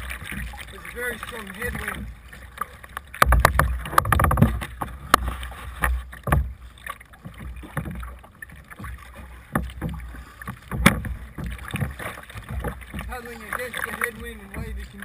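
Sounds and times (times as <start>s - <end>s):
paddle strokes splashing: 0.0s - 15.0s
waves splashing against hull: 0.0s - 15.0s
knocks: 3.2s - 6.5s, 8.8s - 13.1s.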